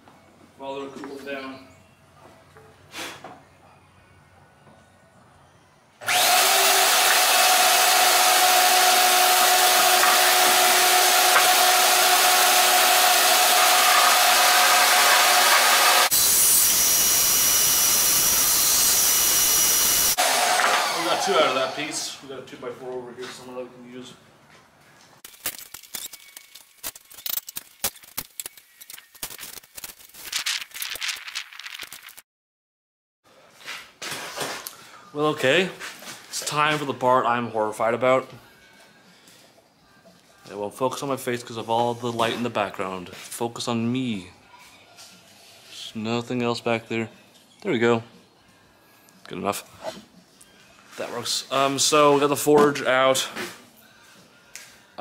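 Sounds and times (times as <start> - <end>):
power saw cutting wood: 6.0 - 22.2.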